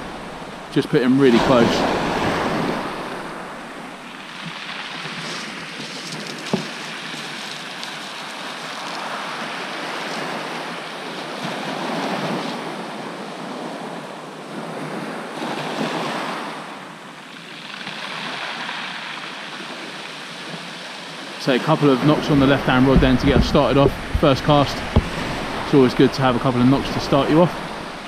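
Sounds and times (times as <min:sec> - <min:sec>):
wind on microphone: 0:00.0 - 0:04.2, 0:21.8 - 0:28.0
sea waves washing onto beach: 0:00.0 - 0:28.0.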